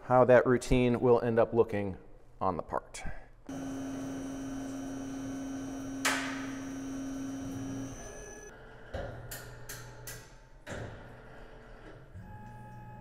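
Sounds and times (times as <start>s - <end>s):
lathe spindle humming: 3.5s - 8.5s.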